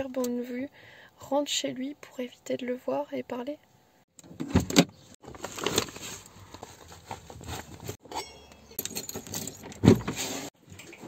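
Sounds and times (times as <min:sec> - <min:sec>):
handling noises: 0:04.3 - 0:11.0
keyring jangling: 0:08.2 - 0:09.8.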